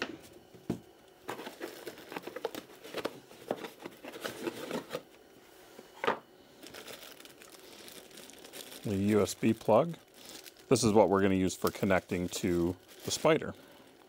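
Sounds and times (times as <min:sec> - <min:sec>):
cardboard and foam rustling: 0:01.2 - 0:05.1, 0:06.6 - 0:13.6.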